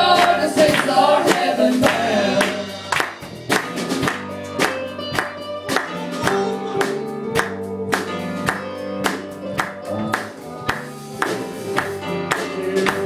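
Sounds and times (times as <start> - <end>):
sharp drum hits: 0.0 - 4.8
bass guitar: 0.0 - 13.0
electric guitars: 0.0 - 13.0.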